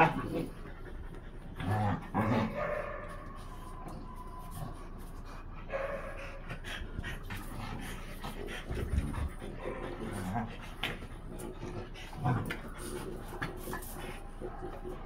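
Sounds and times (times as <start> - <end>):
dogs panting: 0.0 - 15.0
dog whining: 3.2 - 5.1.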